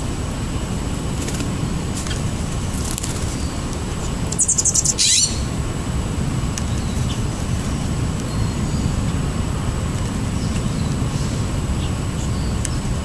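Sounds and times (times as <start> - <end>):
steady low rumble: 0.0 - 13.0
bird trilling: 2.0 - 5.6.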